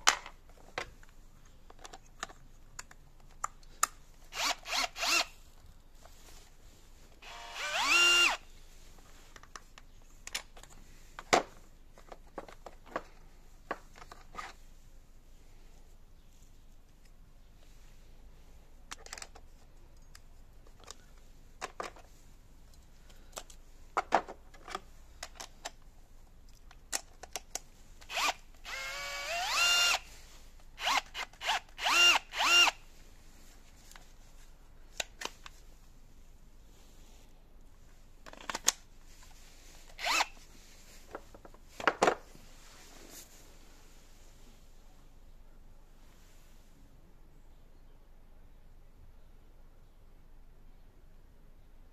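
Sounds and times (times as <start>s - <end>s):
drill motor whining: 4.4s - 5.3s, 7.2s - 8.4s, 28.1s - 30.0s, 30.8s - 32.8s, 40.0s - 40.3s.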